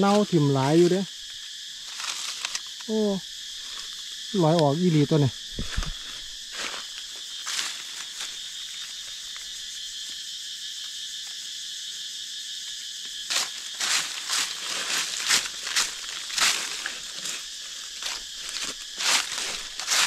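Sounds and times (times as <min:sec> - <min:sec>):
insects buzzing: 0:00.0 - 0:20.0
dry leaves crunching underfoot: 0:00.6 - 0:02.8, 0:05.4 - 0:09.4, 0:13.3 - 0:20.0.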